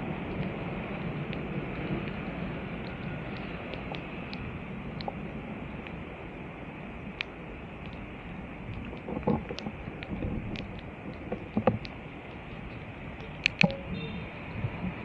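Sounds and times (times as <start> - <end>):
rain: 0.0 - 15.0
sharp clicks and knocks: 8.7 - 14.0.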